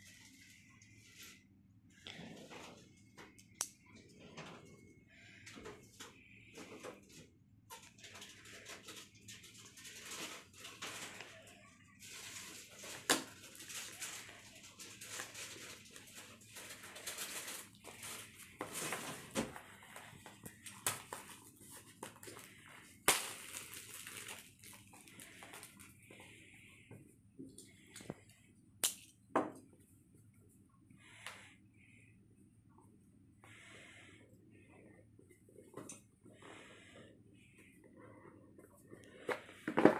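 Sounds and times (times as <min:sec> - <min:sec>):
rustling handling noise: 0:12.0 - 0:28.4.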